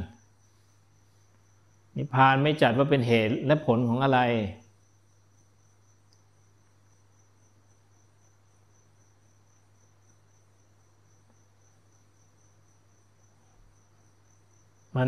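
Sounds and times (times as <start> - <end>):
insect chirring: 0.0 - 15.0.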